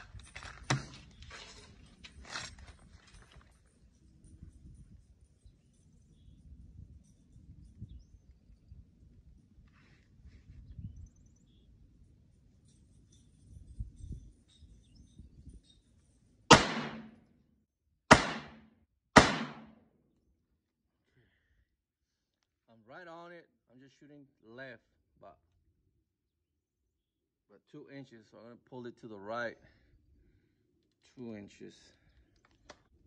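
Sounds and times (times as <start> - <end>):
rifle shots with echo: 16.5 - 17.2, 18.1 - 19.8.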